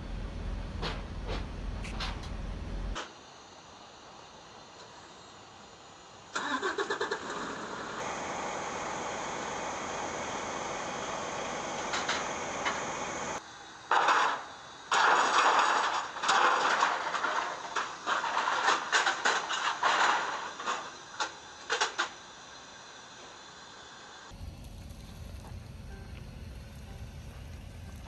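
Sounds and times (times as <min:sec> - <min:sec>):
steady hiss: 0:02.9 - 0:28.0
steel ramps clanking and rattling: 0:13.9 - 0:22.2.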